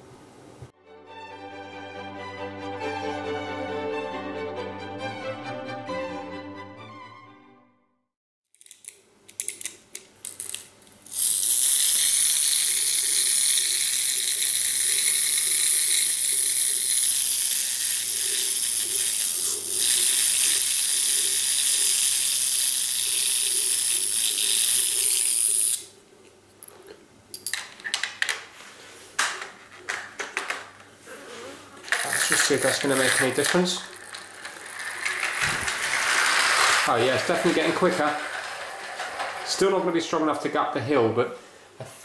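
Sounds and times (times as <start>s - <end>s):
toy car clockwork clicking: 8.6s - 10.4s, 11.0s - 25.9s, 31.9s - 39.8s
clockwork motor whirring: 11.0s - 25.9s, 31.8s - 40.7s.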